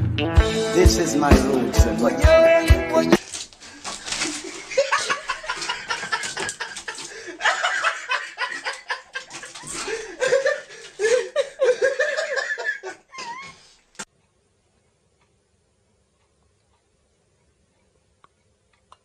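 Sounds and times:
people laughing: 4.2s - 13.5s.

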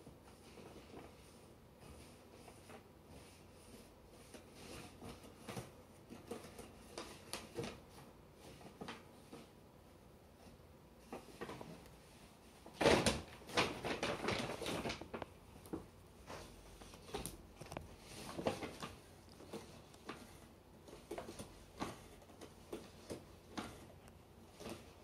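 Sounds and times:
paper bag rustling: 11.0s - 25.0s.

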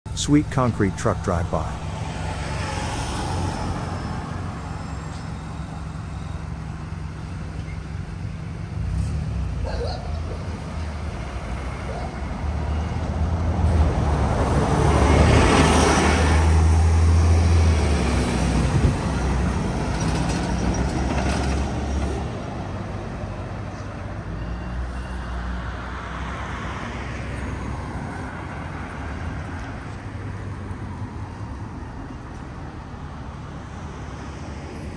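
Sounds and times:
truck diesel engine rumble: 0.1s - 12.0s
light car traffic: 0.1s - 34.9s.

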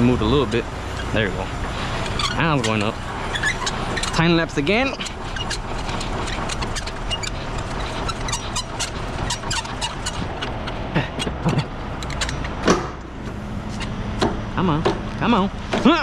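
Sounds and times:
steady low hum: 0.0s - 16.0s
crank gearbox metal clicks: 2.0s - 13.1s.

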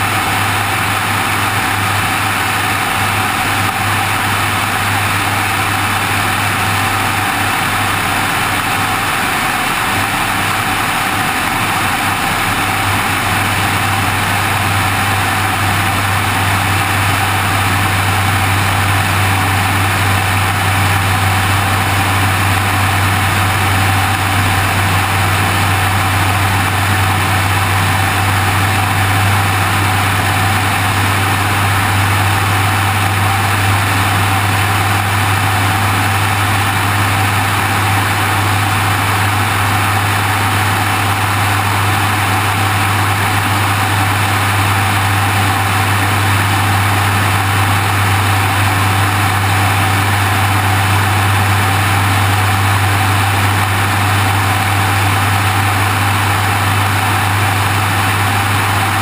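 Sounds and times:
airplane engine drone: 0.0s - 59.0s.

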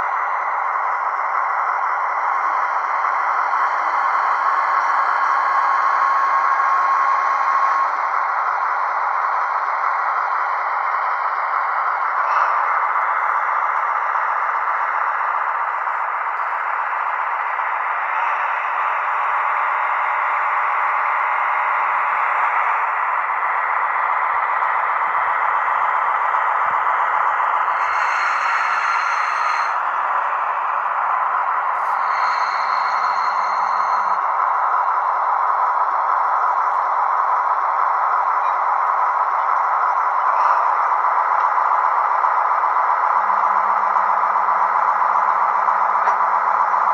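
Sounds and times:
model train rattling hum: 0.0s - 46.9s
high squeal: 11.4s - 20.1s, 27.6s - 35.2s.

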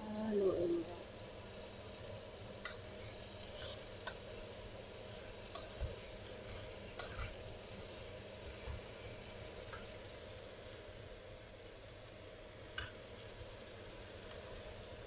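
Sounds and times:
mushrooms sizzling in a pot: 0.0s - 15.0s
spatula clicking against pan: 12.7s - 13.0s.

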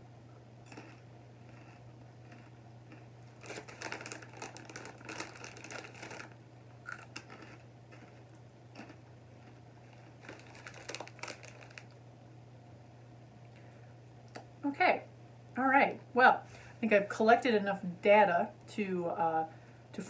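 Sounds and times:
crunchy snacks being eaten: 0.6s - 12.0s
plastic snack bag crinkling: 0.7s - 12.0s.

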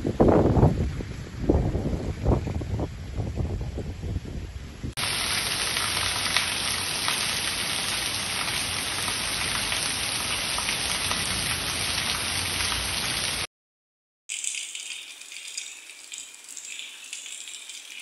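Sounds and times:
wind buffeting microphone: 0.0s - 5.0s
heavy rain on street: 5.0s - 13.5s.

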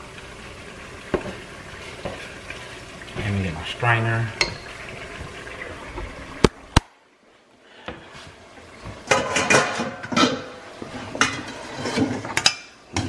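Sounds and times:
metal pots and bowls clanking: 4.4s - 4.8s, 9.0s - 13.0s.

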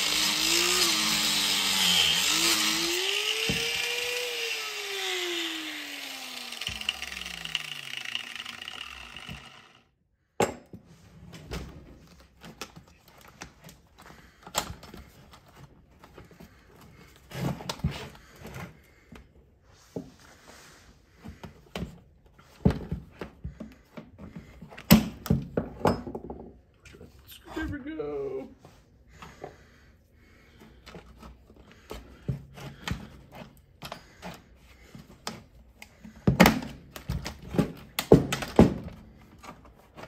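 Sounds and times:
power tool running: 0.0s - 9.9s.

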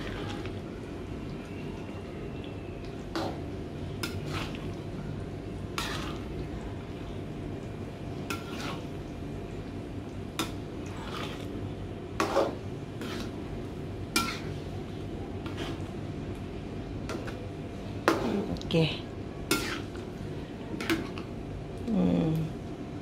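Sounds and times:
spatula scraping a metal wok: 4.0s - 4.7s, 5.7s - 6.4s, 8.3s - 9.0s, 10.9s - 11.5s, 12.2s - 13.4s, 14.1s - 14.5s, 15.4s - 15.9s, 19.5s - 20.0s.

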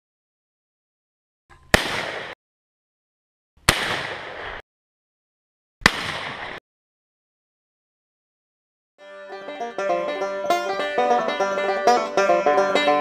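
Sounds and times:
shotgun blasts with echo: 1.7s - 2.4s, 3.6s - 4.6s, 5.8s - 6.6s.

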